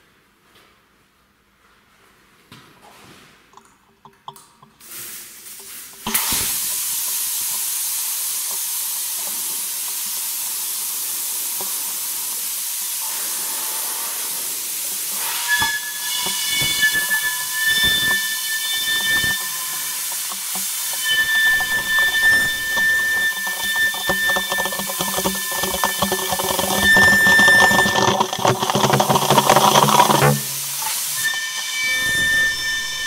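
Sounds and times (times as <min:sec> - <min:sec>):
whistle: 0:15.3 - 0:30.2, 0:30.8 - 0:33.0.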